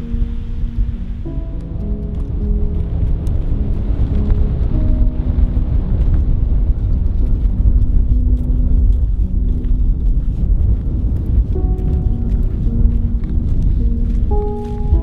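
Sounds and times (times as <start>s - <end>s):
soft background music: 0.0s - 15.0s
wind buffeting microphone: 0.0s - 15.0s.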